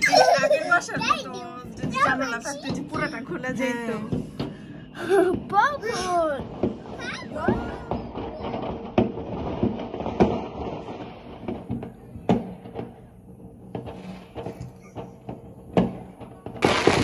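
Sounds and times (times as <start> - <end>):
fireworks bangs and pops: 0.0 - 17.0.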